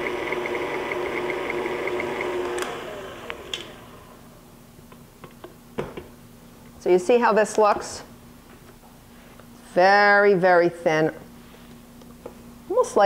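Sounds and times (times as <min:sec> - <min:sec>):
stand mixer motor hum: 0:00.0 - 0:04.4
mixer switch click: 0:02.4 - 0:03.8.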